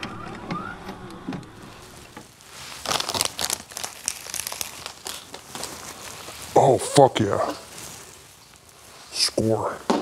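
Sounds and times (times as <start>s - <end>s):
plastic packaging crinkling: 1.6s - 9.8s.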